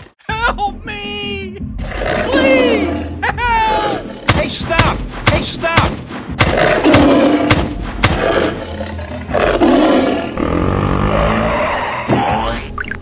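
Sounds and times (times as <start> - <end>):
sharp heavy thuds: 4.3 - 8.5
long low growls: 8.3 - 12.1.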